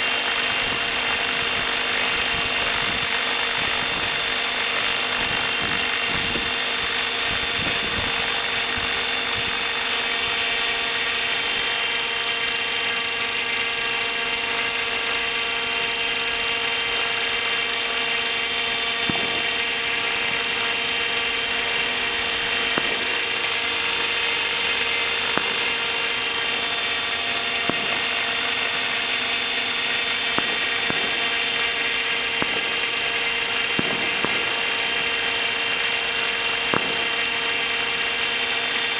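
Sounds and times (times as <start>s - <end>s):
rc helicopter motor whine: 0.0s - 38.9s
rotor rushing: 0.0s - 38.9s.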